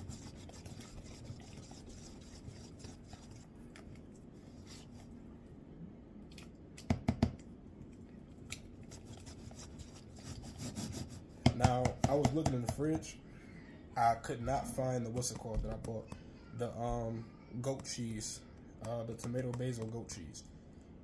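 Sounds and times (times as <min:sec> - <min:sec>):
utensil stirring thick dip: 0:00.0 - 0:05.2, 0:08.4 - 0:12.8.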